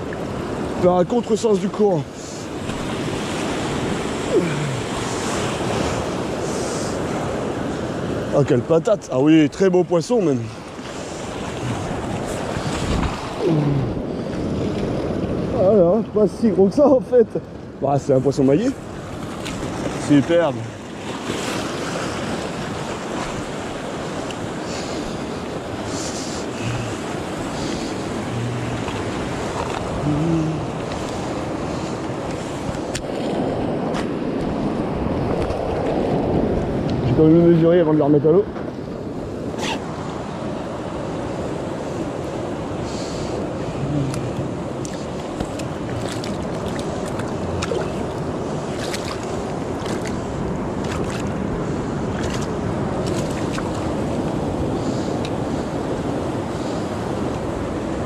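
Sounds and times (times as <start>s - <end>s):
surf washing over rocks: 0.0s - 58.0s
wind on microphone: 10.8s - 15.7s, 20.6s - 37.5s
wind buffeting microphone: 11.0s - 16.0s
hands handling fish and gear: 44.1s - 51.4s.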